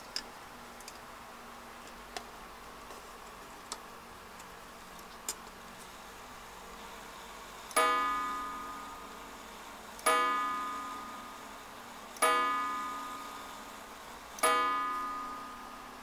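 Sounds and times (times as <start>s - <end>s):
clock striking the hour: 7.7s - 9.1s, 10.0s - 11.3s, 12.2s - 13.4s, 14.4s - 15.7s.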